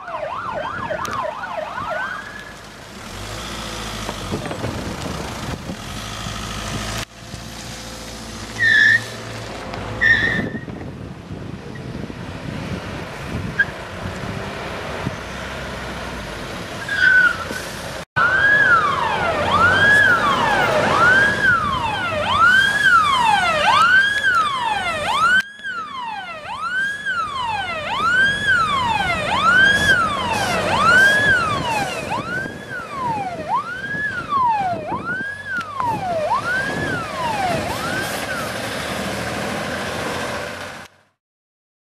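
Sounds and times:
fire truck siren wailing: 0.0 - 2.6, 18.2 - 40.4
passing traffic noise: 0.0 - 41.2.

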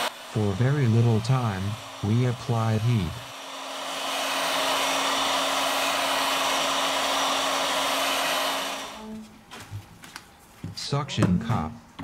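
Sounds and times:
heat gun blowing hot air: 0.0 - 9.2.

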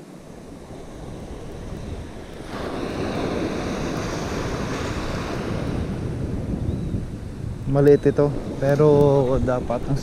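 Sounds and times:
small surf breaking on sand: 0.0 - 6.3
wind rumbling on microphone: 0.0 - 10.0.

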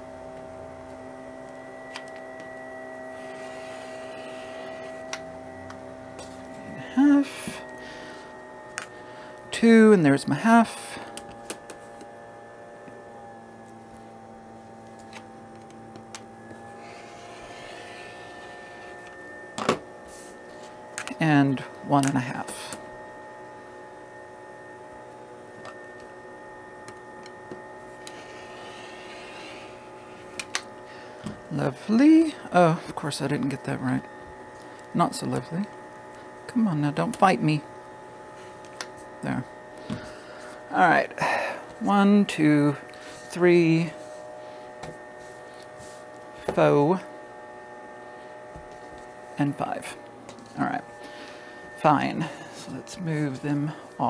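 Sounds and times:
steady background hum: 0.0 - 54.0
rotary cutter rasping through fabric: 3.1 - 5.2, 16.6 - 19.2, 28.0 - 31.0.

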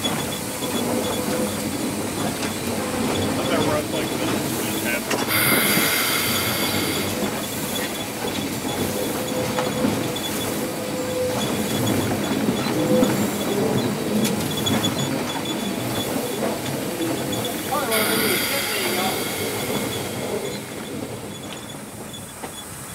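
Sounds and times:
locomotive running gear rumbling: 0.1 - 22.9
steam hiss: 3.2 - 11.9, 15.6 - 22.8.

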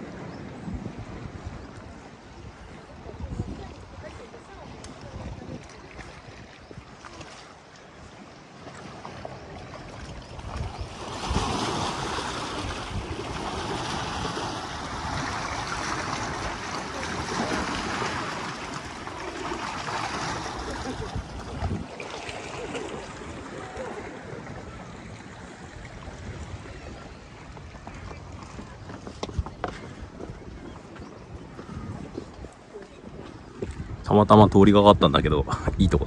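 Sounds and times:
sea water splashing on rocks: 3.6 - 24.3.

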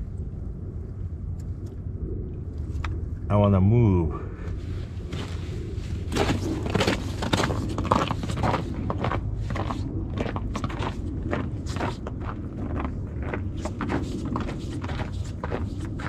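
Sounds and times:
footsteps crunching on snowy ice: 4.8 - 16.0.

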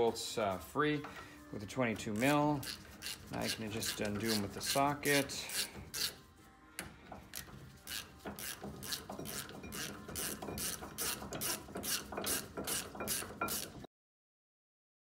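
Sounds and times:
socket ratchet clicking: 2.2 - 4.8, 6.8 - 13.8.

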